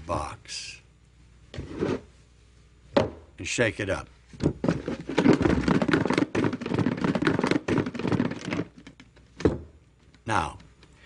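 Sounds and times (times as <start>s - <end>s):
toy blocks rattling in a box: 5.1s - 8.9s.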